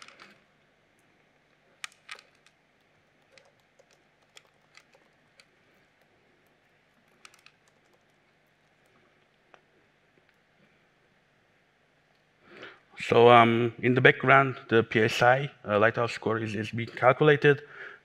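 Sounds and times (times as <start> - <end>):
computer keyboard keystrokes: 1.8 - 9.0.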